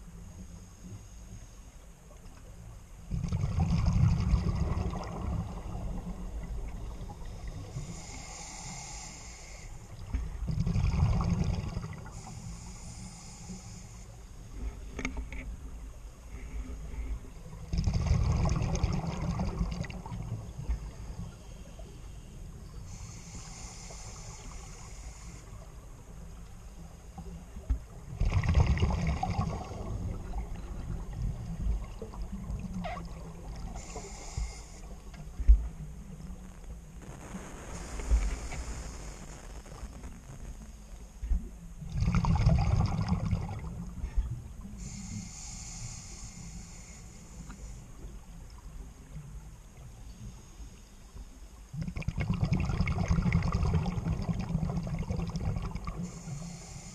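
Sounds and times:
exhaled bubbles gurgling underwater: 3.0 - 13.8, 15.8 - 26.3, 27.0 - 46.0, 51.6 - 56.9
regulator inhalation hiss: 7.0 - 10.0, 12.0 - 14.8, 20.9 - 26.2, 33.6 - 35.5, 36.4 - 41.1, 44.6 - 48.2, 56.0 - 56.9.

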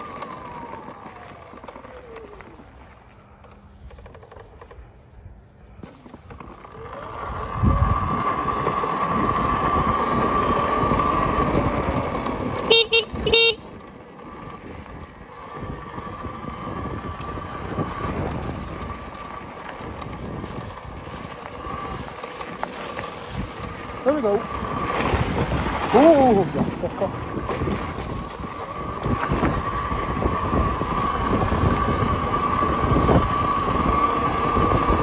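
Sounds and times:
electric motor whine: 0.0 - 4.7, 6.2 - 12.8, 14.2 - 35.0
tyre and wind rumble: 0.0 - 35.0
short horn beeps: 12.6 - 13.8.

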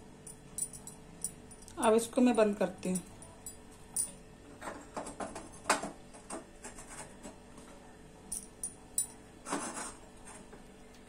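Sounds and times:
metal burner parts clinking: 0.3 - 1.7, 8.3 - 9.2.

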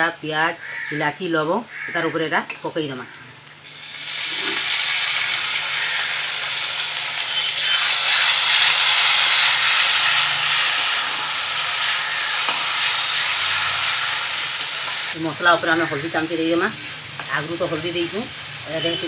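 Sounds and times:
paste sizzling in hot oil: 3.6 - 19.0.

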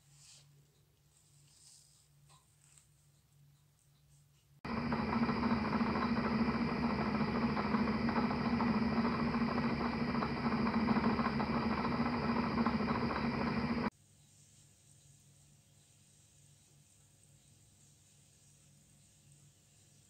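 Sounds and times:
small electric motor humming: 4.7 - 13.9.

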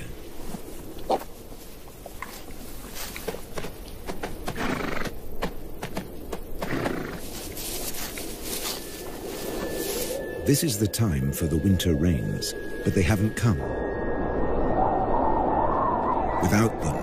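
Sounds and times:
horses cropping and chewing grass: 0.3 - 10.2.

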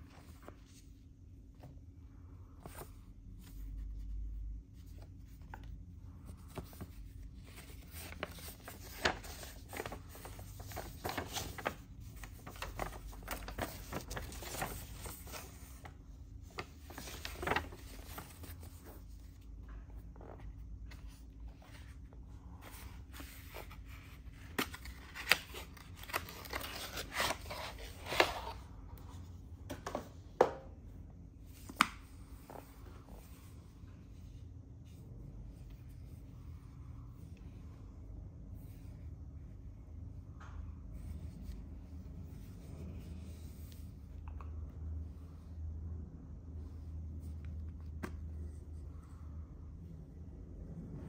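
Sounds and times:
paper and cardboard rustling: 2.6 - 28.6.

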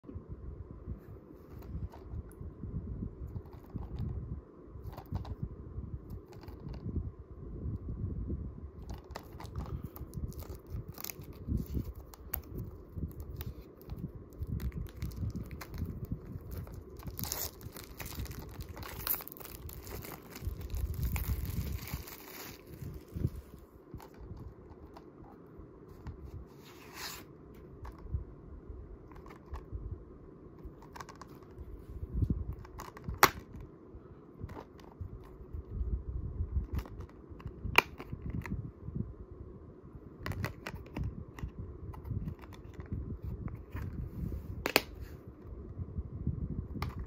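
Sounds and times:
hands handling plastic case: 8.8 - 23.2, 23.9 - 28.1, 29.1 - 29.7, 30.6 - 31.6
plastic shrink-wrap crinkling and tearing: 9.1 - 23.2
plastic case snapping open: 32.6 - 33.6, 44.6 - 45.0.

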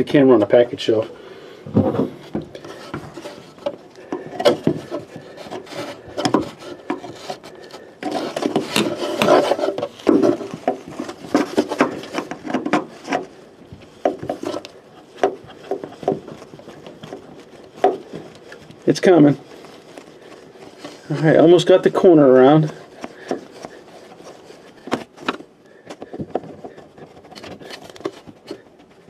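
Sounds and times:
rubber gasket rubbing and scraping: 0.0 - 29.0
small knocks: 1.7 - 18.8.

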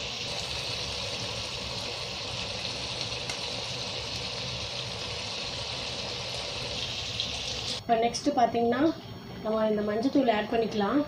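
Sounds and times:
chicken sizzling in pan: 0.0 - 7.8.

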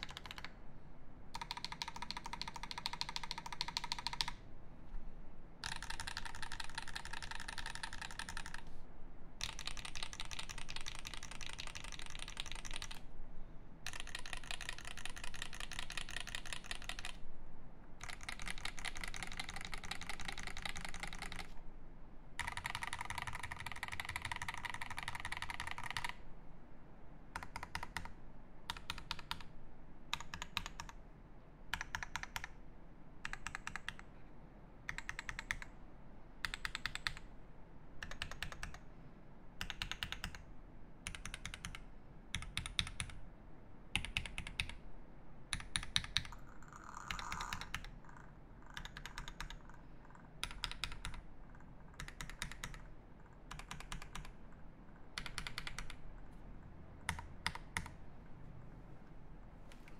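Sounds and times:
typing on mechanical keyboard: 0.0 - 0.5, 1.3 - 4.4, 5.6 - 8.7, 9.4 - 13.0, 13.8 - 17.2, 18.0 - 21.6, 22.4 - 26.2, 27.4 - 29.5, 30.1 - 31.0, 31.7 - 32.6, 33.2 - 34.1, 34.9 - 35.7, 36.4 - 37.2, 38.0 - 38.8, 39.6 - 40.4, 41.0 - 43.2, 43.9 - 44.8, 45.5 - 56.0, 57.0 - 58.0.

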